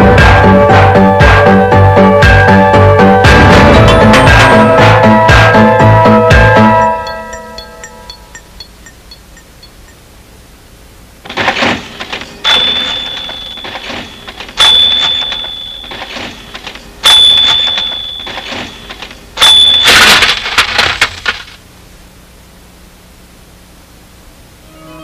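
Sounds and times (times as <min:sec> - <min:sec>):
mechanical crashes: 0:03.2 - 0:07.2, 0:11.2 - 0:21.6
high ringing tone: 0:03.8 - 0:10.0, 0:12.3 - 0:20.0, 0:24.6 - 0:25.0.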